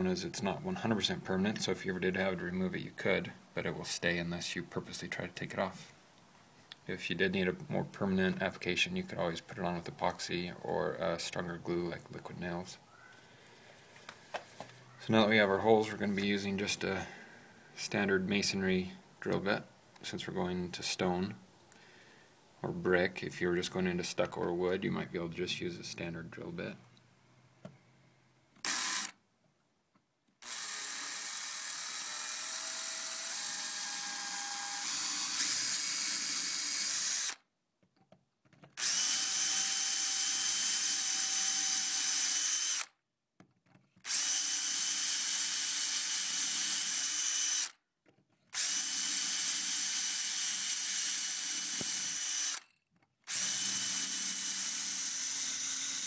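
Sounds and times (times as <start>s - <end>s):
power drill boring into stone: 28.6s - 29.2s, 30.4s - 37.4s, 38.8s - 42.9s, 44.0s - 47.8s, 48.6s - 52.6s, 53.3s - 56.0s.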